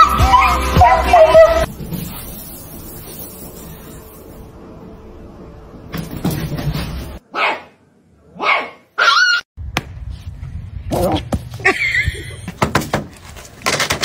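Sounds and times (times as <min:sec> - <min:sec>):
puppy yipping: 0:08.4 - 0:09.4.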